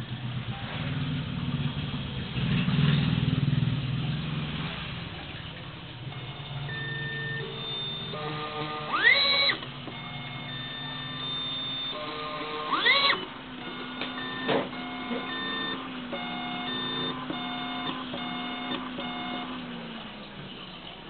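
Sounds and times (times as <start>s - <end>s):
stepper motors whining: 5.2s - 21.0s.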